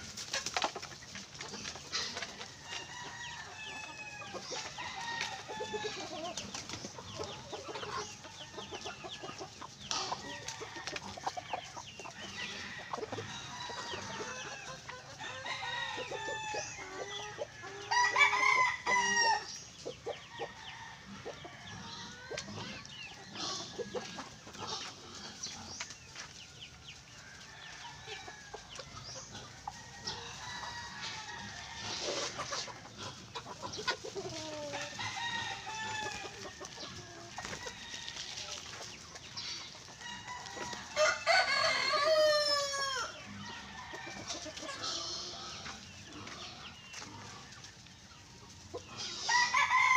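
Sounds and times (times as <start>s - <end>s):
chickens clucking: 0.0s - 49.9s
rooster crowing: 17.7s - 19.5s, 34.6s - 36.4s, 40.0s - 44.4s, 49.3s - 49.9s.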